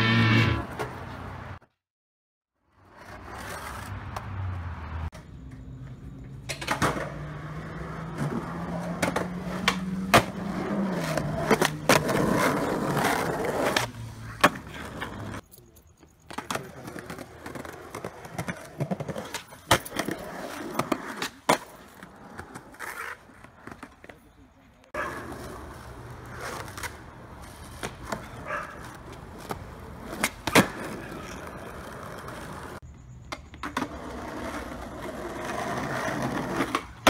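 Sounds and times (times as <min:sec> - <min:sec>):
skateboard wheels rolling on pavement: 0:00.0 - 0:01.7, 0:02.6 - 0:37.0
skateboard clacks: 0:05.1 - 0:07.4, 0:08.1 - 0:15.4, 0:25.0 - 0:37.0.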